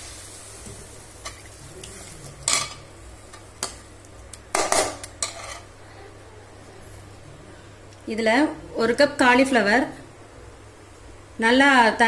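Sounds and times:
spoon scraping and clinking on pan: 4.6 - 5.7.

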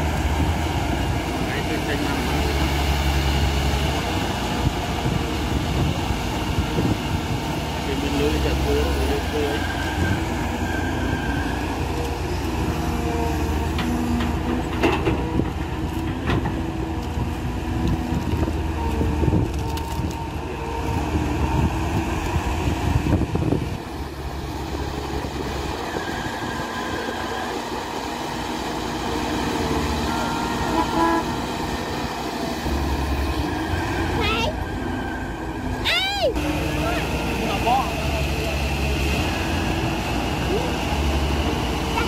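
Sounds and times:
excavator diesel engine under load: 0.0 - 42.0
hydraulic whine: 17.8 - 42.0.

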